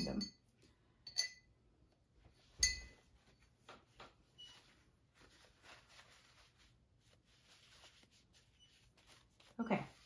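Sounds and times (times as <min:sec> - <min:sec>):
sharp ringing clink: 0:01.1 - 0:01.5, 0:02.6 - 0:02.9
faint tapping and rustling: 0:02.3 - 0:04.8.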